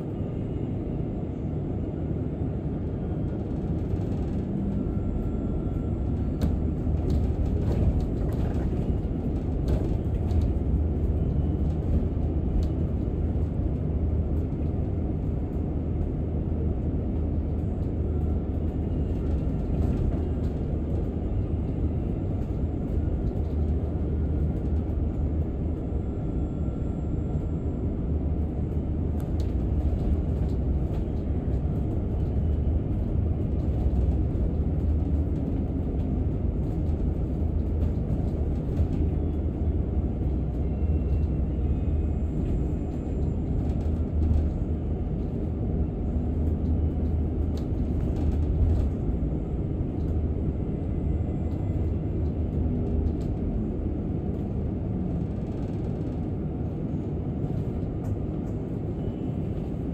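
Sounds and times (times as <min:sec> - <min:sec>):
bus engine and road rumble: 0:00.0 - 0:59.9.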